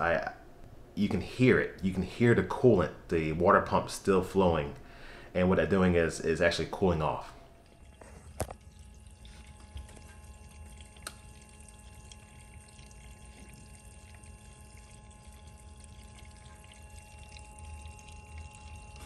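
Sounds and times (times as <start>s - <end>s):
electric water pump hum: 0.0s - 19.0s
coolant flowing through hoses: 5.6s - 19.0s.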